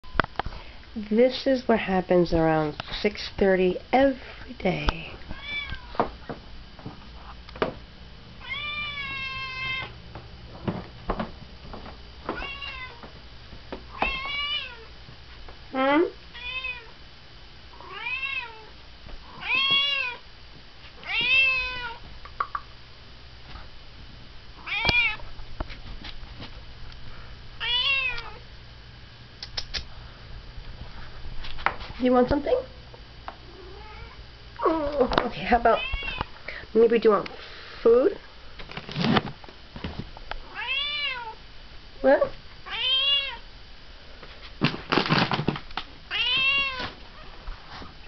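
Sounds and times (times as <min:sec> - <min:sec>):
cat meowing: 0:05.3 - 0:06.0, 0:08.4 - 0:10.0, 0:12.3 - 0:13.0, 0:14.0 - 0:14.9, 0:16.3 - 0:16.9, 0:17.8 - 0:18.7, 0:19.4 - 0:20.2, 0:21.0 - 0:22.0, 0:24.6 - 0:25.2, 0:27.6 - 0:28.4, 0:33.6 - 0:34.2, 0:35.8 - 0:36.3, 0:40.5 - 0:41.4, 0:42.6 - 0:43.4, 0:46.1 - 0:46.9.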